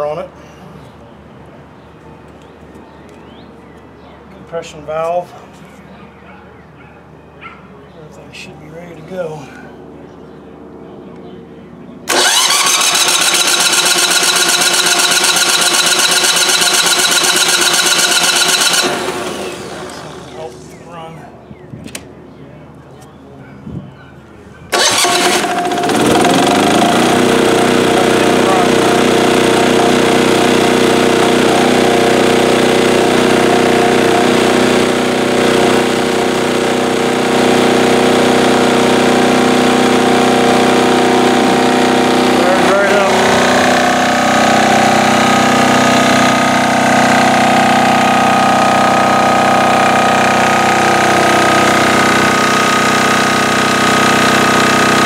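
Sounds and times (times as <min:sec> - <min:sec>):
starter cranking diesel engine: 0:12.1 - 0:20.6, 0:24.7 - 0:55.0
engine spinning down: 0:12.1 - 0:20.7, 0:24.7 - 0:55.0.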